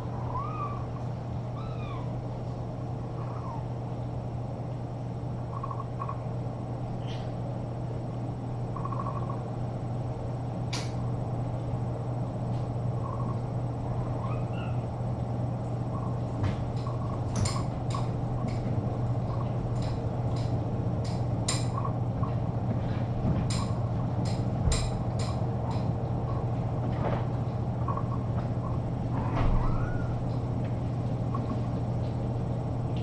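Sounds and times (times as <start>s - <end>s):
low room hum: 0.0s - 33.0s
faint rising squeak: 29.1s - 30.4s.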